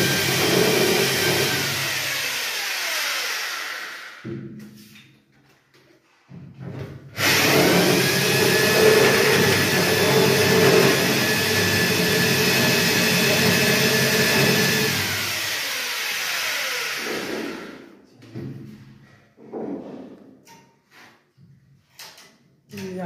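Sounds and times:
drill motor winding down: 0.0s - 4.3s, 7.2s - 17.9s
electric drill boring into ceiling: 0.0s - 4.3s, 7.2s - 18.0s.

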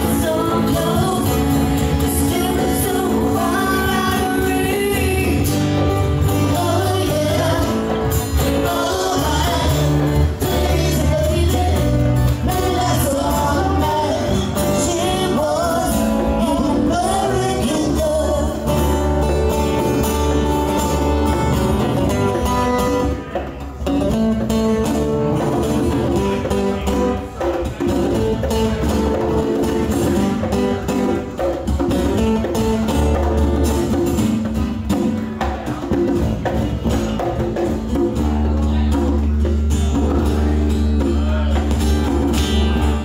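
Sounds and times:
person singing: 0.0s - 21.2s
conga drums: 0.0s - 43.0s
electric bass guitar: 0.0s - 43.0s
strummed acoustic guitars: 0.0s - 43.0s.

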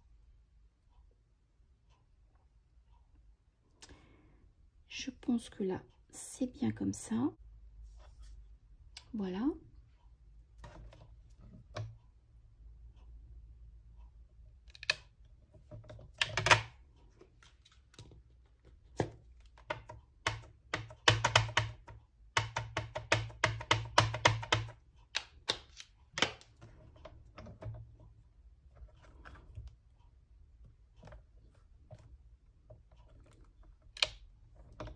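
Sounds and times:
acrylic stamp clicks and knocks: 14.7s - 16.8s, 18.9s - 28.0s, 32.6s - 34.9s.

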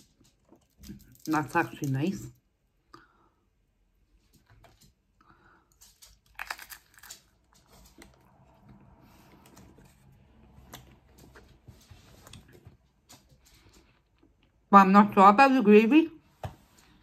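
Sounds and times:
crunching crispy fish: 5.7s - 8.2s
chewing: 5.7s - 11.5s.

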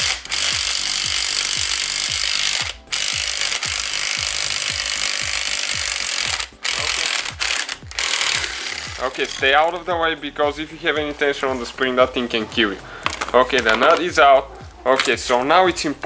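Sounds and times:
impact wrench hammering: 0.0s - 9.8s.

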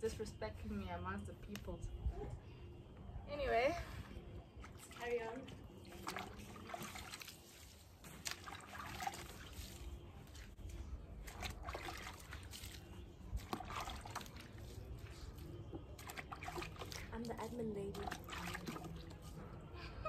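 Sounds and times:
water trickling and splashing: 4.2s - 19.6s.

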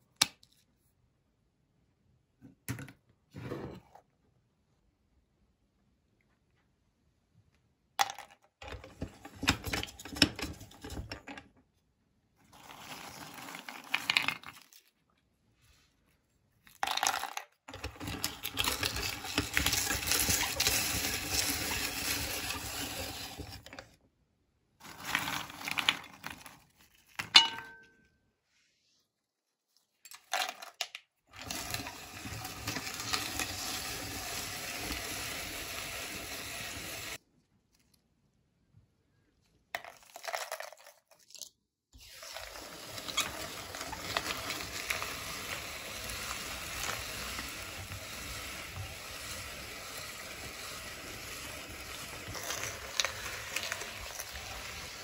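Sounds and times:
meat grinder crunching biscuits: 12.5s - 14.7s, 16.8s - 23.8s, 24.8s - 26.6s, 31.3s - 37.2s, 42.0s - 55.0s.

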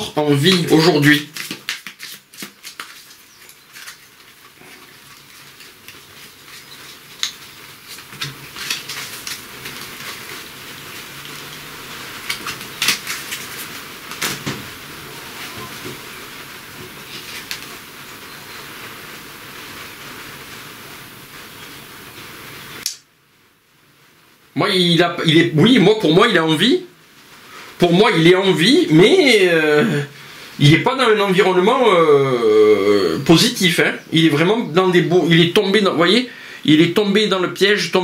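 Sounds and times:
cards shuffling: 0.3s - 14.7s, 17.0s - 17.7s
cards snapping and tapping: 1.3s - 4.0s, 12.2s - 13.4s.

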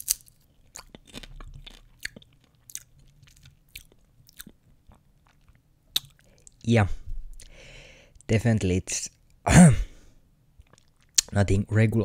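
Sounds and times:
person chewing popcorn: 0.0s - 6.6s, 10.6s - 11.3s.

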